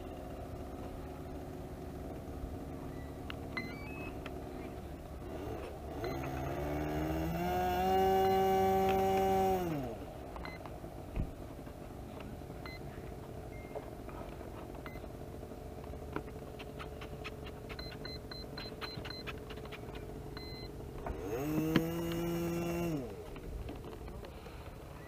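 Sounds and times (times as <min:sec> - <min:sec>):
model aircraft motor: 0:00.0 - 0:10.1, 0:15.8 - 0:24.9
short electronic beeps: 0:02.9 - 0:04.2, 0:17.7 - 0:19.4, 0:20.4 - 0:20.7.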